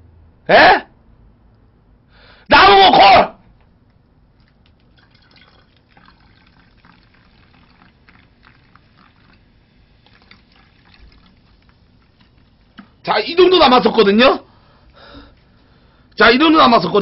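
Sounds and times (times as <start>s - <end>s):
liquid pouring with crackles: 3.8s - 13.1s.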